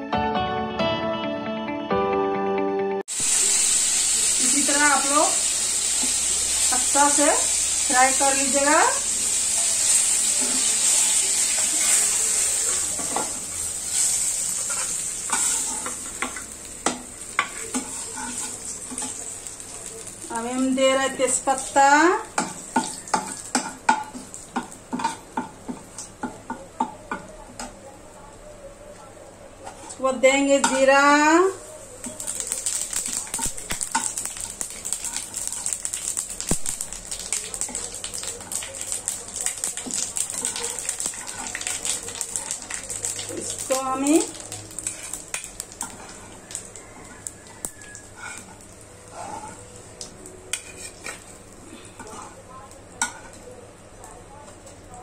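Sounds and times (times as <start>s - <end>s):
fish sizzling in hot oil: 3.1s - 26.1s, 31.8s - 52.4s
spatula stirring in pan: 9.2s - 20.0s, 22.4s - 27.3s, 31.8s - 53.5s
metal spatula scraping pan: 9.5s - 16.3s, 17.4s - 19.2s, 47.9s - 49.7s, 50.5s - 51.4s, 52.0s - 52.4s.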